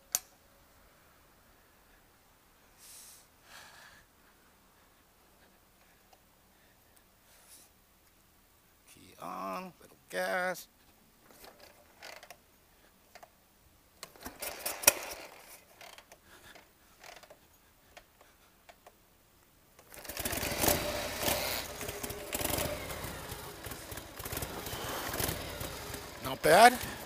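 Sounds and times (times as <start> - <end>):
motorcycle engine idling: 20.0 - 27.0.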